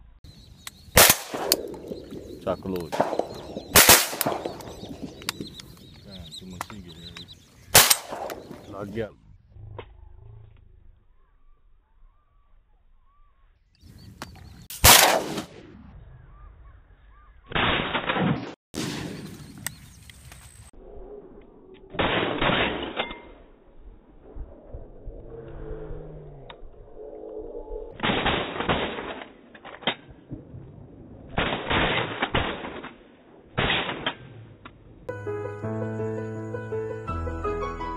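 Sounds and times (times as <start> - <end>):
shotgun blasts echoing: 0.9 - 5.8, 6.5 - 8.8, 14.8 - 15.6, 17.5 - 19.6.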